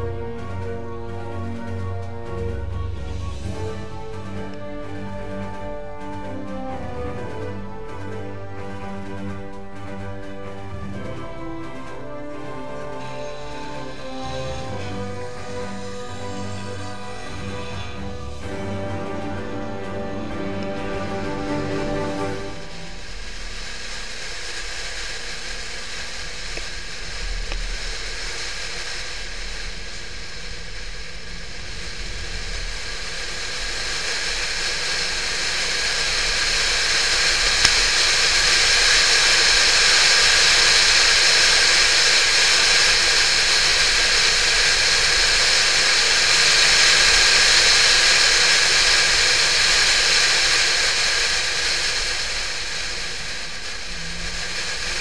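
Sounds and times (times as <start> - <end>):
wind rush: 0.0 - 55.0
road noise: 12.4 - 55.0.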